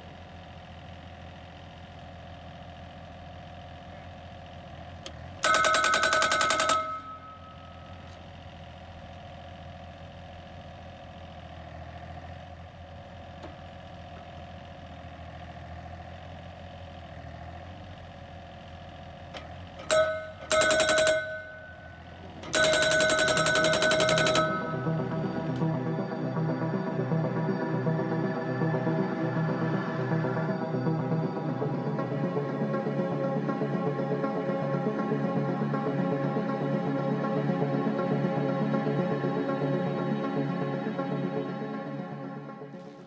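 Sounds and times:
diesel engine running: 0.0 - 43.0
steel post ringing: 5.4 - 8.0, 19.8 - 25.0
hydraulic post driver hammering: 19.8 - 21.8.

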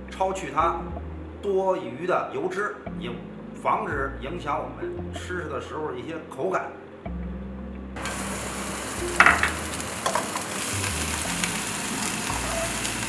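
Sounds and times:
vegetables sizzling in hot oil: 8.0 - 13.0
metal spatula knocking on wok: 9.2 - 10.2.

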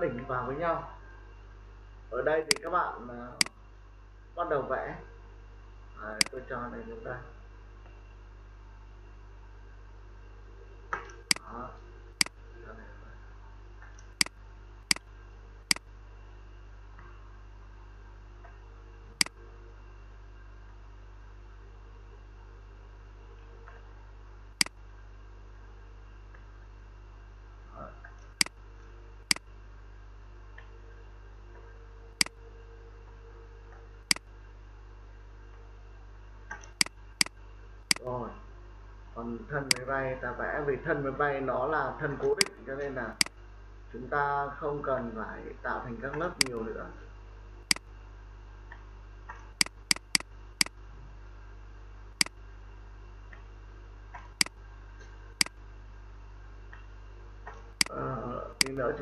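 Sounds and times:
steady low hum: 0.0 - 59.0
computer mouse clicks: 2.5 - 2.7, 46.4 - 46.6, 49.6 - 50.8, 58.6 - 58.8
mouse clicks: 2.5 - 2.7, 36.6 - 38.1, 46.4 - 46.6, 49.6 - 50.8.

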